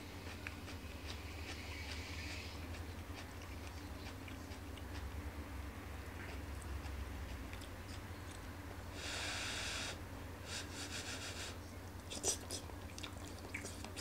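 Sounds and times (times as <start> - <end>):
person chewing: 0.2 - 5.2, 6.2 - 8.4, 12.0 - 14.0.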